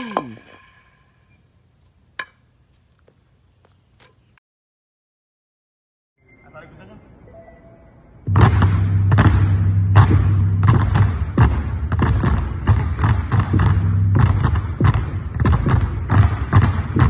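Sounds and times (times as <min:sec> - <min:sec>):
steady low hum: 0:06.2 - 0:17.0
basketballs dribbling on wooden floor: 0:08.3 - 0:17.0.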